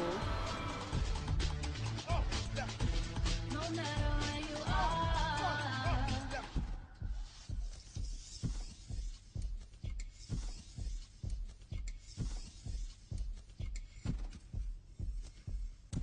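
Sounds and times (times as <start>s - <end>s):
kick drum beat: 0.2s - 16.0s
hi-hat ticks: 7.1s - 16.0s.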